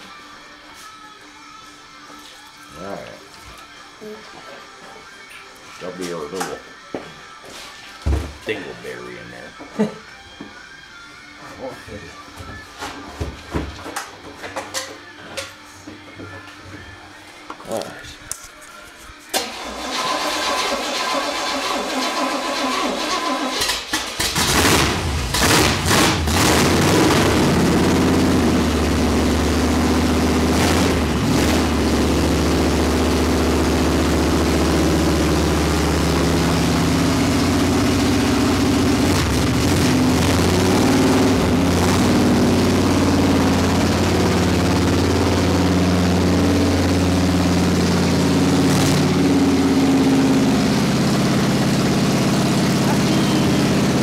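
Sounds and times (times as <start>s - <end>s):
engine starter cranking: 19.3s - 26.1s
car engine revving and running: 19.4s - 54.0s.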